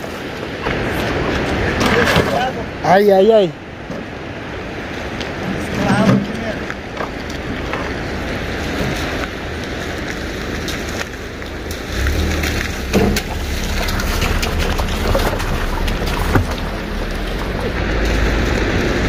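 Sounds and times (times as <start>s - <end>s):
car engine rumble: 3.6s - 19.0s
tyres on gravel: 4.9s - 19.0s.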